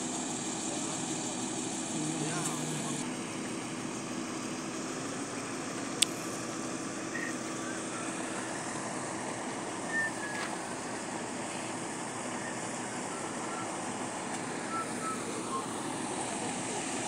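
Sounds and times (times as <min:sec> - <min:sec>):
distant engine running: 0:00.0 - 0:17.0
outdoor noise: 0:00.0 - 0:17.0.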